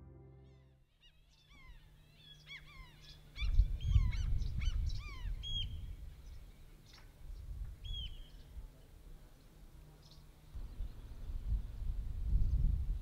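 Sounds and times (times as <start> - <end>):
birds calling: 0.4 - 7.1.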